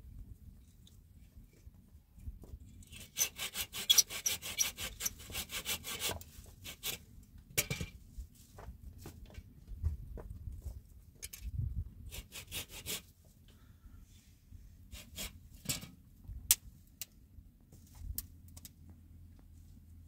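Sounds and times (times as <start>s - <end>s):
hand saw sawing wood: 3.0s - 7.0s, 12.1s - 13.1s, 14.9s - 15.4s.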